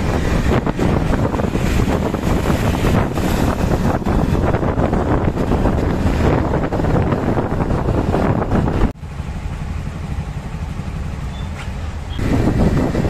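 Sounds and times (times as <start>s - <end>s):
wind rushing over microphone: 0.0s - 9.0s, 12.0s - 13.0s
low engine hum: 0.0s - 13.0s
motorcycle engine: 0.0s - 13.0s.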